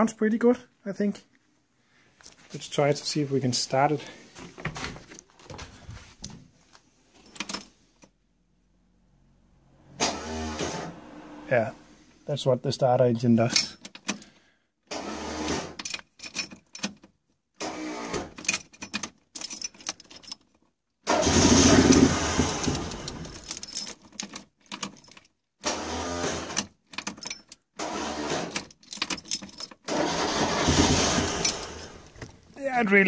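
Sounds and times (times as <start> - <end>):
starter motor cranking engine: 10.0 - 11.4, 21.1 - 23.5, 27.8 - 28.6, 29.9 - 32.2.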